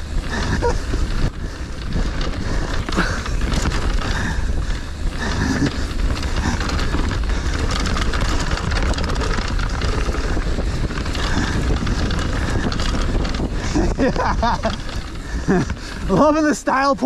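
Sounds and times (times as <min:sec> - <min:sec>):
bike clattering and knocking: 0:00.0 - 0:17.0
tyres rolling over rough ground: 0:00.0 - 0:17.0
wind rumbling on microphone: 0:00.0 - 0:17.0.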